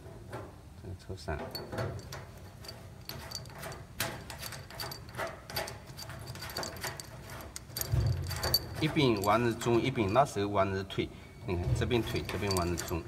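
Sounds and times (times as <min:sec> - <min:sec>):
metal connectors clicking: 0:01.5 - 0:10.4, 0:12.0 - 0:13.0.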